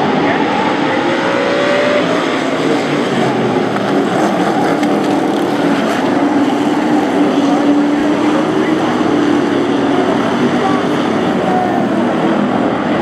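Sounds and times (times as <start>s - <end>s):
racing truck engines roaring: 0.0s - 13.0s.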